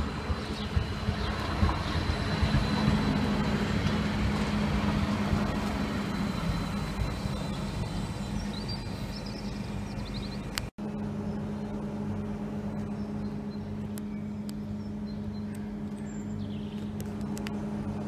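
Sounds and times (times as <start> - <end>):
tram passing on rails: 0.0 - 14.4
thin high whine: 0.0 - 14.5.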